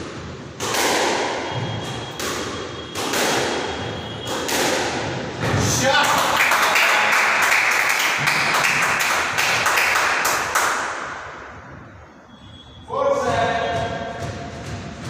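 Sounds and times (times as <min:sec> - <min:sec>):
spectators clapping and cheering: 0:05.8 - 0:11.1.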